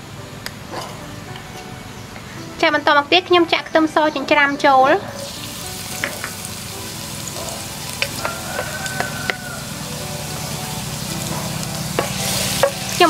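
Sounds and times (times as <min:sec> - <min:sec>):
garlic sizzling in hot oil: 0:05.2 - 0:13.0
oil crackling and popping: 0:05.3 - 0:09.6.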